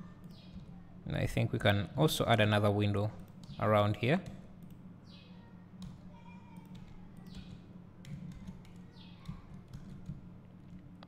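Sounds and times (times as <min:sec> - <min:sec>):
low steady hum: 0:00.0 - 0:11.0
keyboard keystrokes: 0:06.6 - 0:10.2.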